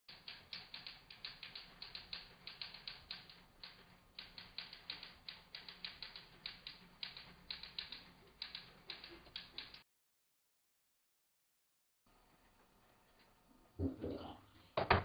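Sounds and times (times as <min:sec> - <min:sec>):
typewriter keys clicking: 0:00.1 - 0:09.8.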